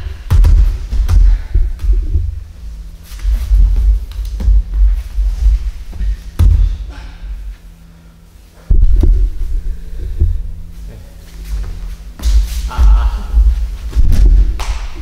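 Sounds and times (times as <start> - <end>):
steady low hum: 0.0 - 15.0
bodies thudding on mats: 0.1 - 2.4, 3.1 - 6.9, 11.4 - 15.0.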